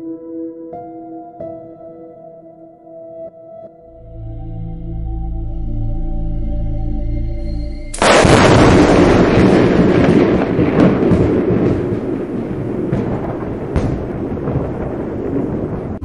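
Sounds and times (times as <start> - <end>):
thunder crash and rumble: 8.0 - 16.0.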